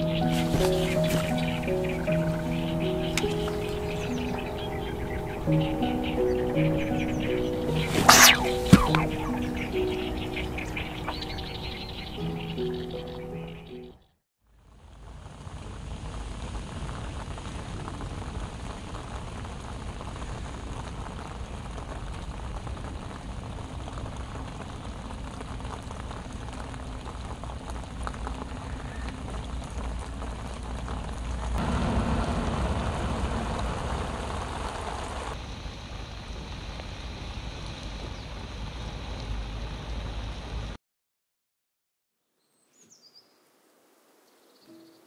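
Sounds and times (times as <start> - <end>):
rain falling on water: 0.0 - 7.9, 14.5 - 40.8.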